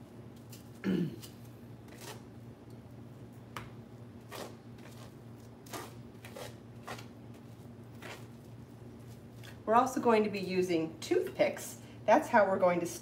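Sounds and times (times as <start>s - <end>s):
low steady hum: 0.0s - 13.0s
knife scraping cream cheese: 1.9s - 2.3s, 4.2s - 8.5s.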